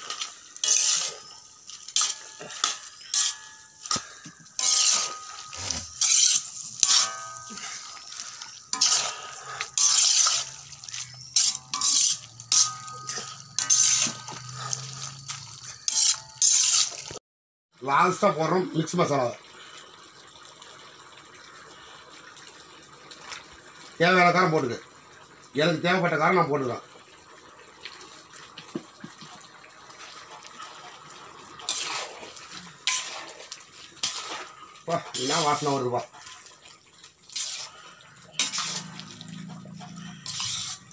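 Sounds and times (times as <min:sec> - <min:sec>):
spatula scraping iron pan: 0:00.0 - 0:01.3, 0:01.9 - 0:17.1, 0:31.7 - 0:36.4, 0:37.3 - 0:40.9
curry bubbling and hissing: 0:00.0 - 0:17.2, 0:18.1 - 0:40.9
wet food sizzling: 0:00.0 - 0:17.2, 0:17.8 - 0:40.9.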